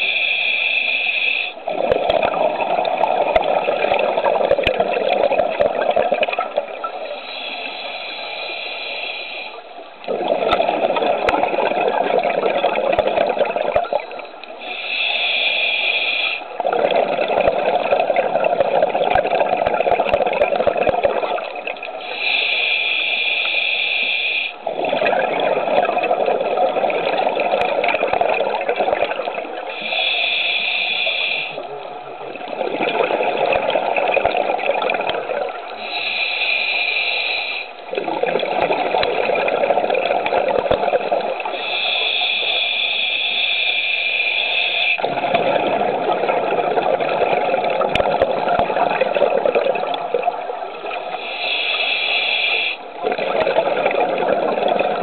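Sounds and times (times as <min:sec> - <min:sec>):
inhale through regulator: 0:00.0 - 0:01.6, 0:07.1 - 0:10.3, 0:14.6 - 0:16.5, 0:22.0 - 0:24.6, 0:29.6 - 0:31.7, 0:35.8 - 0:37.8, 0:41.5 - 0:45.0, 0:51.0 - 0:53.0
rush of exhaust bubbles: 0:01.6 - 0:06.8, 0:10.1 - 0:14.1, 0:16.6 - 0:21.7, 0:24.6 - 0:29.6, 0:32.3 - 0:35.7, 0:37.9 - 0:41.6, 0:45.0 - 0:51.0, 0:53.0 - 0:55.0.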